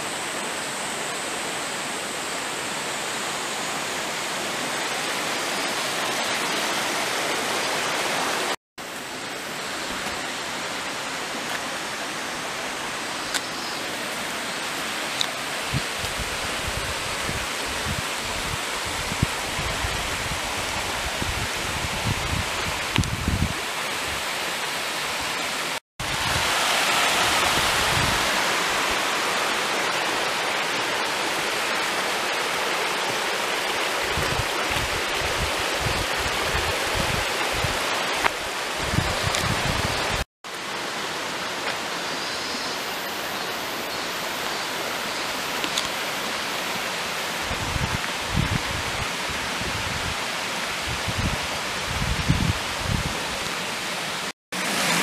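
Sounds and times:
stream rushing over rocks: 0.0 - 55.0.

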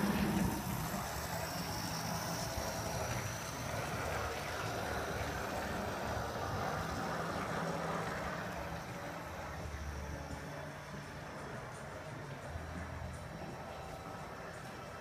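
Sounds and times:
model train rumbling on track: 0.0 - 15.0.

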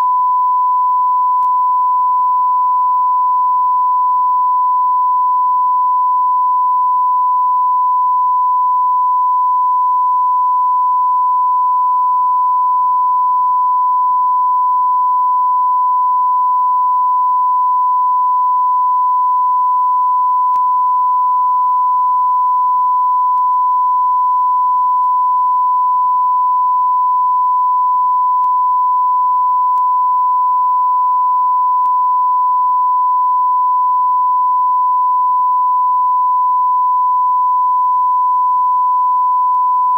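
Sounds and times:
pure test tone: 0.0 - 39.9.

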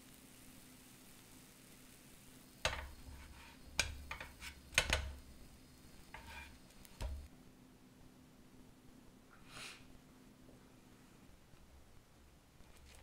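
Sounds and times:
toast scraping against frying pan: 2.6 - 7.3
soft thuds: 6.2 - 7.3.

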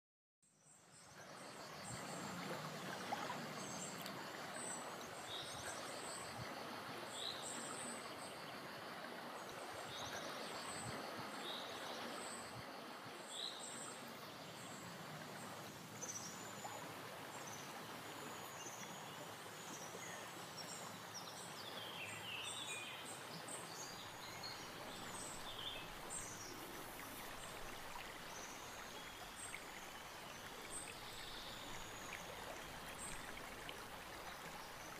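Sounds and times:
steady outdoor hiss: 0.6 - 34.9.

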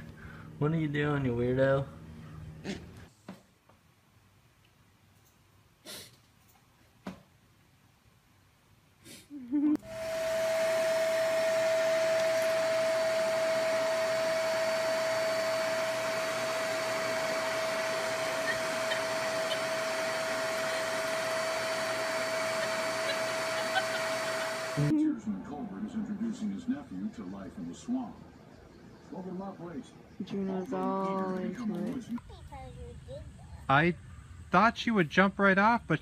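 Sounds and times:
vacuum cleaner running: 9.8 - 24.9.

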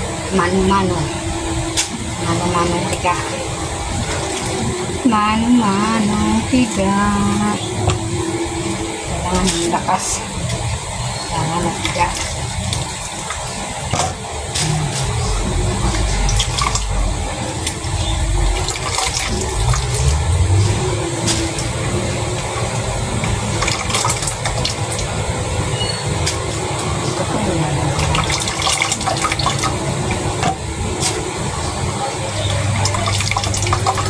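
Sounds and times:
coconut milk trickling: 9.2 - 34.0
hands squeezing wet coconut: 15.9 - 21.8, 32.7 - 34.0.

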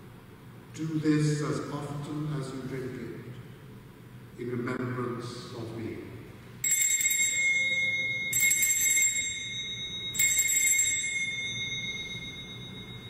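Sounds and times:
bell ringing: 6.6 - 13.0.

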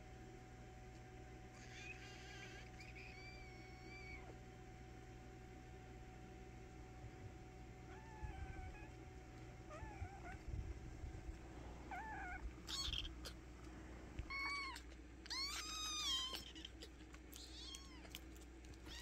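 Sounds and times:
kittens meowing: 1.5 - 4.4, 7.9 - 9.0, 9.6 - 10.6, 11.8 - 13.5, 14.2 - 19.0.

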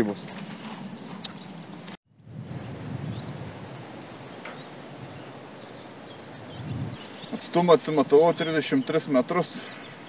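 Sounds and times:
wind noise: 0.6 - 7.5
high bird chirp: 4.3 - 7.6.

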